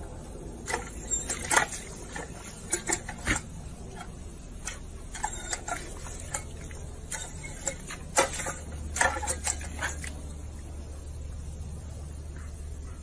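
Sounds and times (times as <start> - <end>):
dog snapping at water: 7.1 - 10.2.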